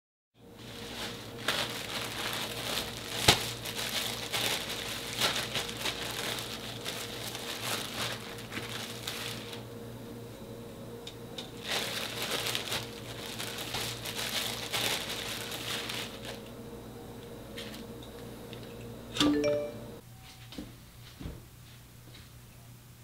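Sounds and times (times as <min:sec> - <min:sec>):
faint steady hum: 0:00.4 - 0:23.0
plastic bag crinkling: 0:00.6 - 0:09.6, 0:11.6 - 0:16.5.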